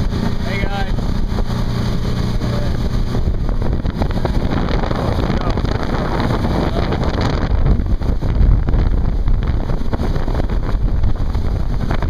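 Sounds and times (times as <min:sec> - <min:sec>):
boat and water rushing: 0:00.0 - 0:12.0
wind buffeting microphone: 0:00.0 - 0:12.0.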